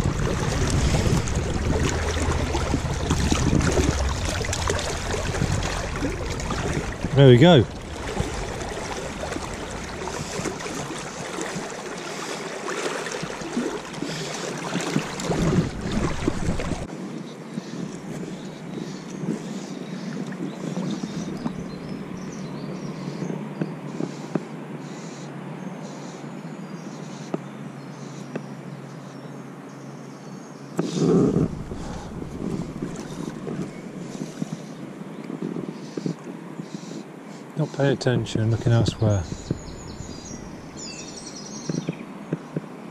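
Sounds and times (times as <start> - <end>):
soft low bumps: 0.0 - 11.9, 31.2 - 34.6
wind buffeting microphone: 0.0 - 12.0, 13.1 - 16.9, 31.0 - 36.5, 38.3 - 42.0
river water rushing over stones: 0.0 - 17.1
steady outdoor hiss: 0.0 - 42.9.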